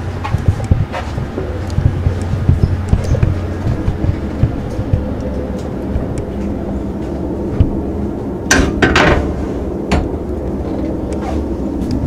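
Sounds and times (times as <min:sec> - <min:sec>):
knocks and clatter: 0:00.0 - 0:07.8, 0:08.5 - 0:10.2
low hum: 0:00.0 - 0:12.0.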